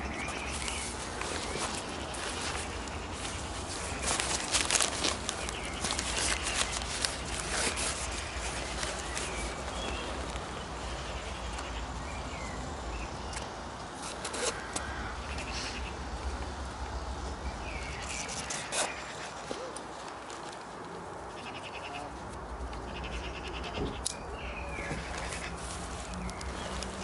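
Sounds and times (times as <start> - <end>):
outdoor hiss and rumble: 0.0 - 27.0
backpack fabric rustling: 0.3 - 10.6.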